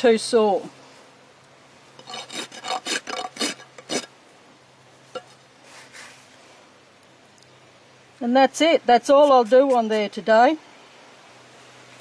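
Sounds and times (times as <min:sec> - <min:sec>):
rasp filing a hoof: 0:02.0 - 0:04.1, 0:09.0 - 0:10.2.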